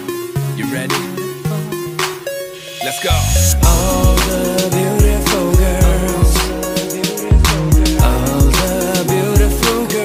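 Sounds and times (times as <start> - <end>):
song with heavy bass beat: 0.0 - 10.0.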